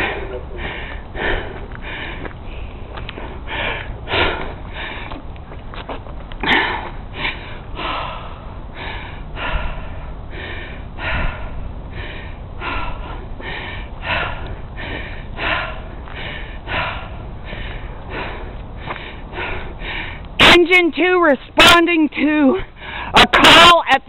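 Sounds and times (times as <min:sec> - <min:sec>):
heavy breathing and sniffing: 0:00.0 - 0:20.4.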